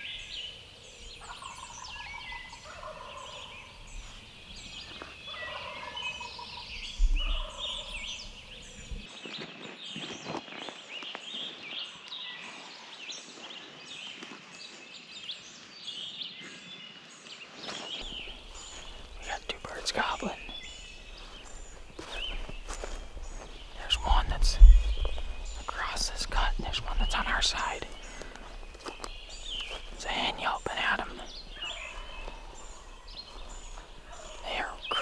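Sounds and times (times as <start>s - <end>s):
songbirds chirping: 0.0s - 35.0s
turkey gobbling: 1.3s - 3.5s, 5.3s - 6.4s.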